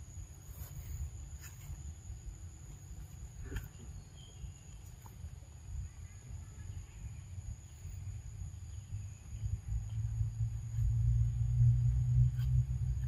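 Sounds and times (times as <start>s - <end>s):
faint chirps: 0.0s - 12.7s
low rumble: 8.0s - 13.0s.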